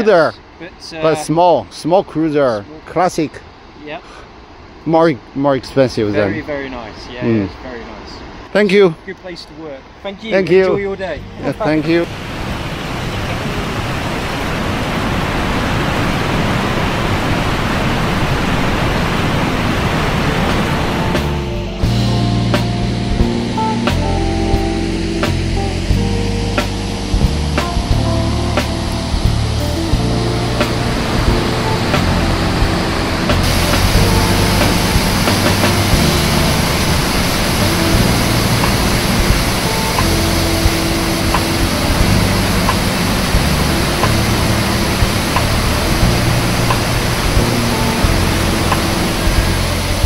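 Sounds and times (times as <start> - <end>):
waterfall rushing: 10.5 - 50.0.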